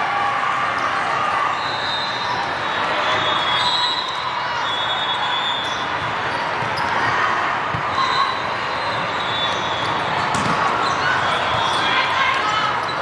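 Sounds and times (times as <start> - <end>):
din of large sports hall: 0.0 - 13.0
sneaker squeaks: 1.5 - 13.0
volleyballs hit and bouncing: 5.8 - 8.0, 9.6 - 13.0.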